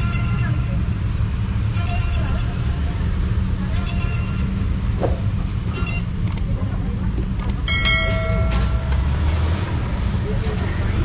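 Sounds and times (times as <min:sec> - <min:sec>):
street traffic rumble: 0:00.0 - 0:11.0
sharp clicks: 0:06.2 - 0:06.5, 0:07.2 - 0:07.7
ringing tone: 0:07.7 - 0:09.5.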